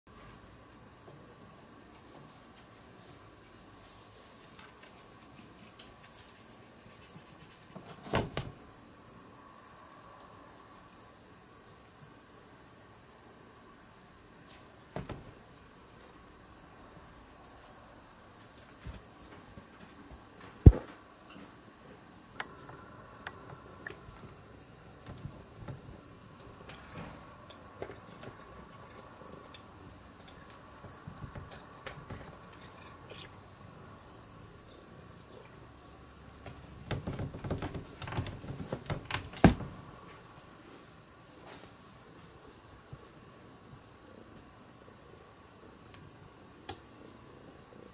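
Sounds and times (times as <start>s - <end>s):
sliding door knocked and rattled: 7.9s - 8.5s, 15.0s - 15.4s, 36.4s - 39.8s
small taps on door: 15.0s - 15.4s, 36.4s - 39.8s.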